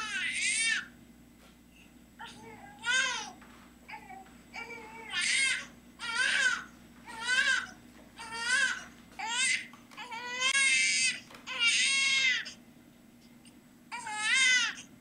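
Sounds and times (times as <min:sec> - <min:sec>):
infant crying: 0:02.2 - 0:12.6, 0:13.9 - 0:14.9.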